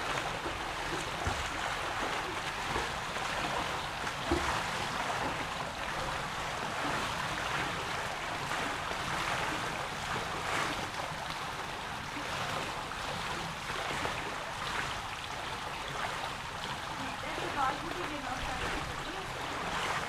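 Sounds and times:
pool water lapping and splashing: 0:00.0 - 0:20.0.

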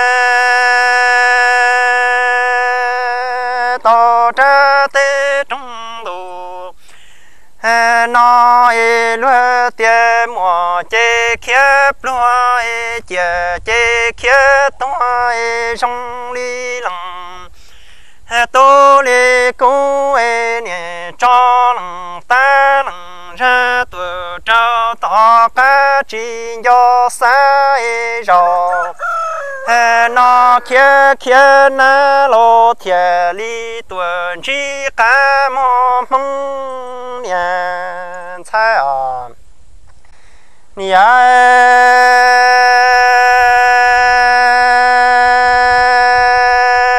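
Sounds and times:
person singing unaccompanied: 0:00.0 - 0:39.5, 0:40.7 - 0:46.9
person chanting high syllables: 0:28.3 - 0:31.2.

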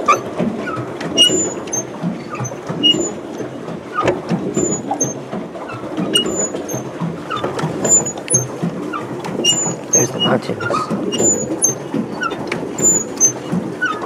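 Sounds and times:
short high squeaks: 0:00.0 - 0:00.3, 0:01.2 - 0:03.2, 0:06.2 - 0:08.5, 0:09.4 - 0:14.0
pedal boat mechanism clattering: 0:00.0 - 0:14.0.

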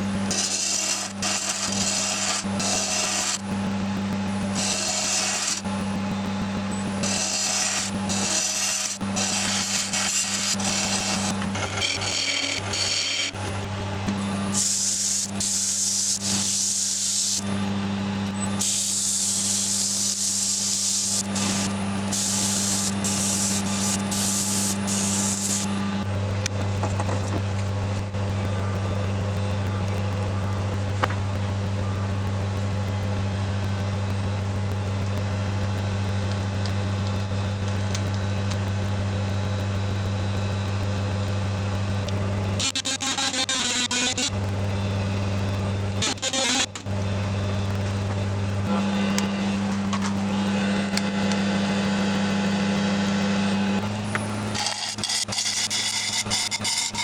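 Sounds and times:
wood lathe motor hum: 0:00.0 - 0:31.2, 0:32.7 - 0:57.0
sandpaper rasping on spinning wood: 0:07.1 - 0:11.3, 0:18.6 - 0:25.7, 0:54.6 - 0:57.0.

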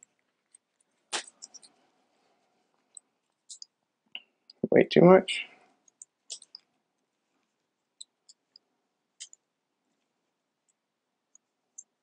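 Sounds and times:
faint clicks and taps on scale: 0:05.8 - 0:06.8.

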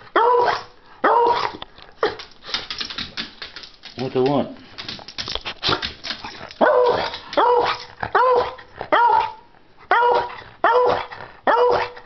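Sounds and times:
dog barking: 0:00.1 - 0:01.6, 0:06.6 - 0:12.0
scuffling clicks: 0:01.5 - 0:08.0.

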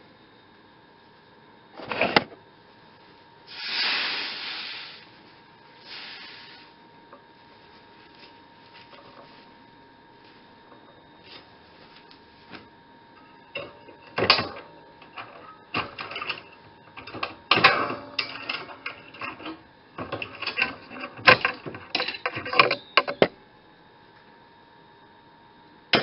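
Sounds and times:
clamps being handled: 0:13.6 - 0:23.3.

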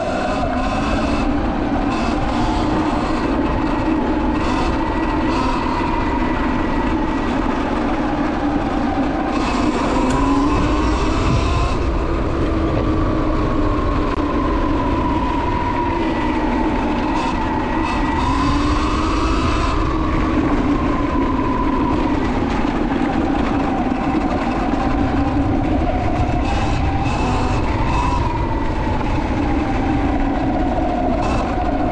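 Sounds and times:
electric motor whining: 0:00.0 - 0:06.4, 0:09.2 - 0:12.0, 0:16.2 - 0:20.2, 0:26.2 - 0:28.4
steady low rumble: 0:10.0 - 0:31.9.

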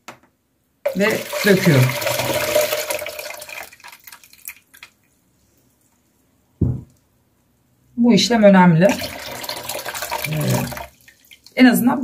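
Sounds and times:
water pouring into plastic jug: 0:00.9 - 0:05.0, 0:08.9 - 0:11.6
short thump: 0:06.6 - 0:06.9.

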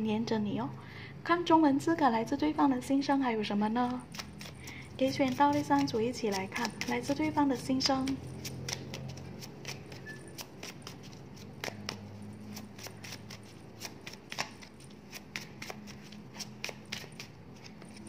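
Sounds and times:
cards clicking and tapping: 0:03.8 - 0:18.0.

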